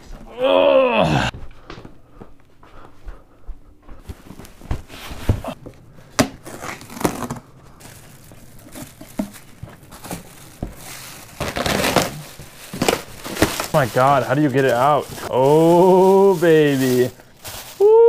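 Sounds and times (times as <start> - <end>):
plastic wrapping crinkling: 5.4 - 18.0.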